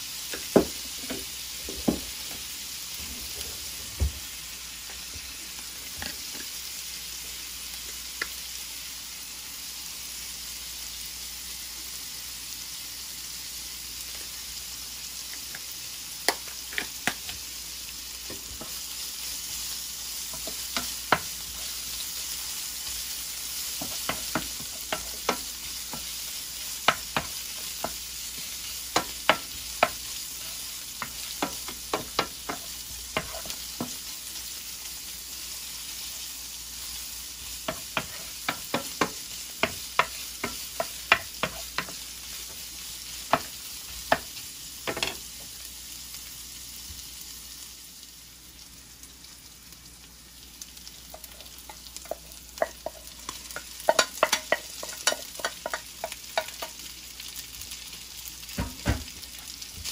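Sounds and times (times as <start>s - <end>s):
meat and garlic sizzling in a pan: 0.0s - 59.9s
utensil clicking and scraping a pan: 22.8s - 34.0s, 37.5s - 45.2s, 51.1s - 56.9s.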